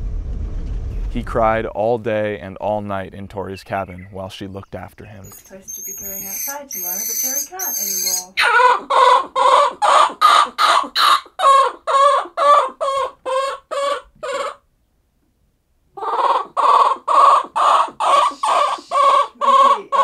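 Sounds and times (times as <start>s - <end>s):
infant monkey distress calls: 5.4s - 14.6s, 16.0s - 20.0s.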